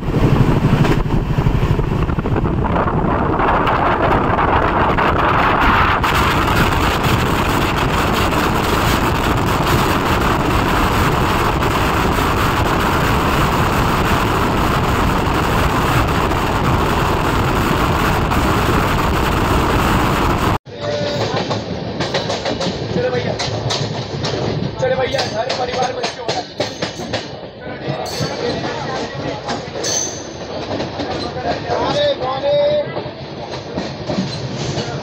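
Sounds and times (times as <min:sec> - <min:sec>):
wind buffeting microphone: 0:00.0 - 0:20.6
train rushing and rumbling: 0:00.0 - 0:35.0.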